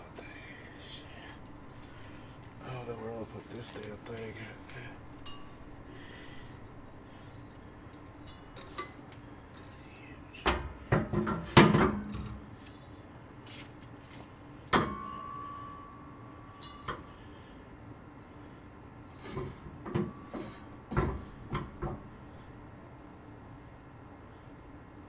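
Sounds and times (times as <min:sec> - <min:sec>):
metal hit with ringing tone: 0:05.2 - 0:05.7, 0:14.7 - 0:17.2.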